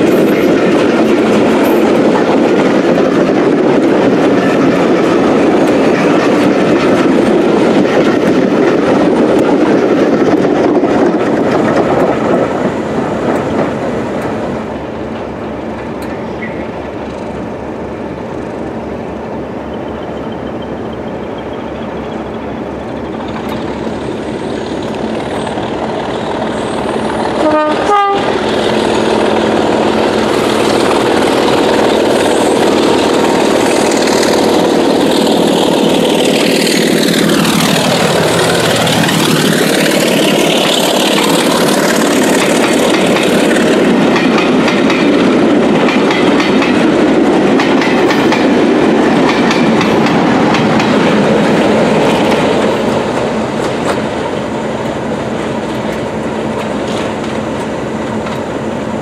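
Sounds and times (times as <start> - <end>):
diesel locomotive engine passing: 0.0 - 59.0
two-note locomotive horn: 27.4 - 28.4
wheels clicking over rail joints: 28.6 - 55.0.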